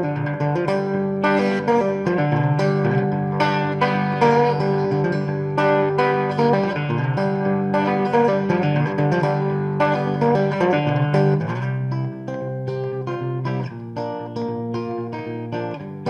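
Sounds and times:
plucked guitar music: 0:00.0 - 0:16.0.

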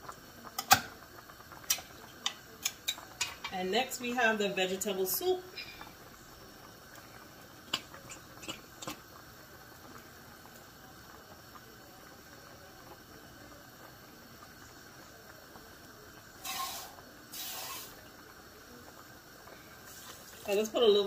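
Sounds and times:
tap water running into can: 0:16.4 - 0:18.0, 0:19.9 - 0:21.0.

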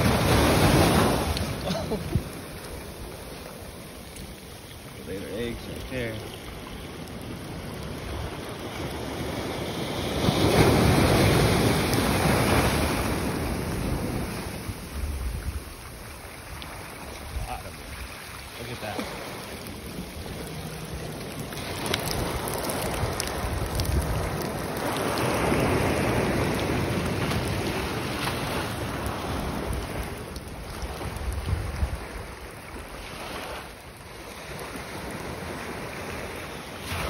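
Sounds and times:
surf washing over sand: 0:00.0 - 0:37.0
wind on microphone: 0:05.9 - 0:18.4, 0:19.1 - 0:33.6.

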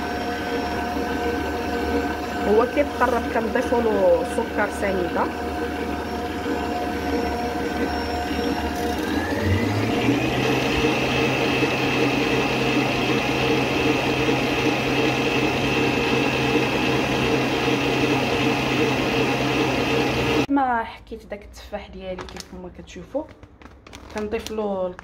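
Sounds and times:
stand mixer whisking batter: 0:00.0 - 0:20.5.

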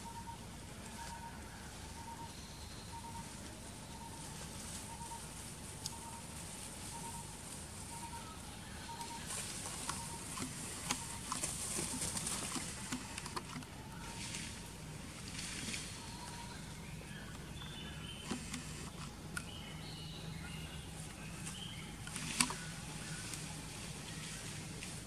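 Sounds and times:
leaf litter rustling: 0:03.8 - 0:16.1.

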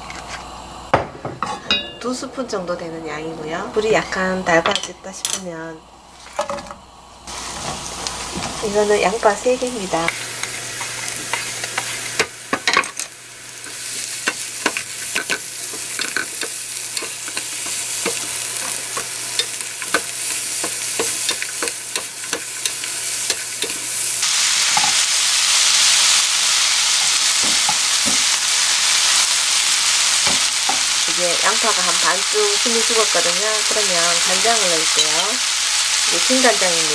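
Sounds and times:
onions sizzling in oil: 0:06.0 - 0:36.9.

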